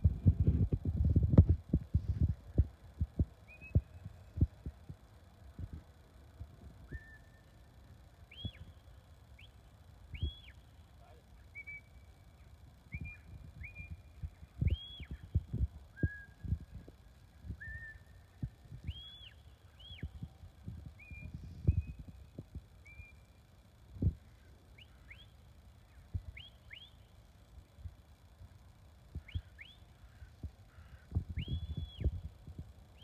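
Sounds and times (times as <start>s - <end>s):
low thumps on microphone: 0.0s - 4.5s
whistled commands: 6.9s - 7.7s, 8.3s - 8.8s, 9.4s - 10.7s, 11.5s - 12.1s, 12.9s - 15.2s, 15.9s - 16.5s, 17.6s - 18.3s, 18.9s - 20.2s.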